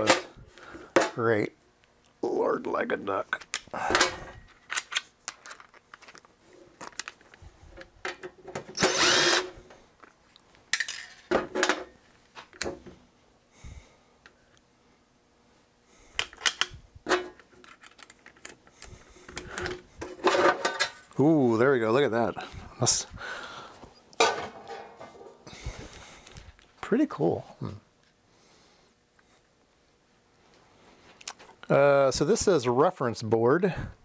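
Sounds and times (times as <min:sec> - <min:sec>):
screws and metal parts clattering: 0:03.5 - 0:07.3, 0:16.3 - 0:18.6
power screwdriver running: 0:08.8 - 0:09.6.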